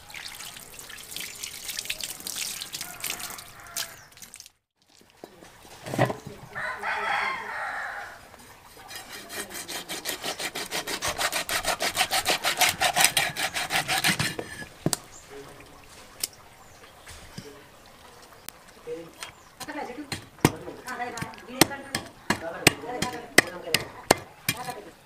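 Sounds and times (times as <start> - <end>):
rooster crowing: 2.6 - 4.1, 6.5 - 8.3, 12.4 - 14.0
knife scraping fish scales: 8.7 - 14.7.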